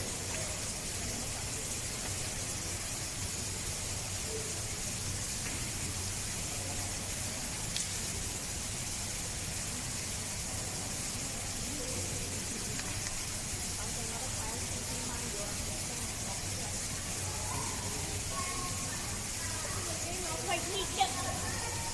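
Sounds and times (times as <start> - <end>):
steady hiss: 0.0 - 21.9
faint click: 7.7 - 8.1, 12.7 - 13.3.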